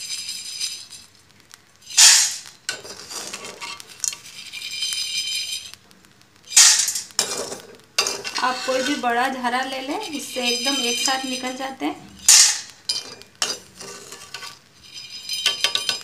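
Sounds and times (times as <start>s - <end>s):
rattle of salt and chickpeas: 0.0s - 5.8s
metal skimmer scraping wok: 1.8s - 5.8s, 6.5s - 16.0s.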